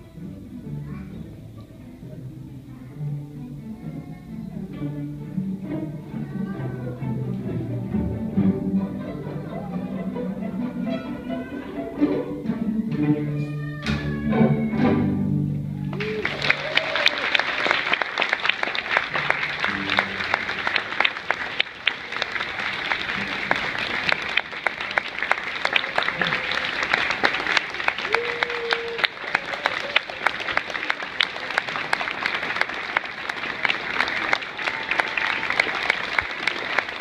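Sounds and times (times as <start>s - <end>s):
audience applauding: 15.8s - 37.0s
voices among clapping: 15.9s - 37.0s.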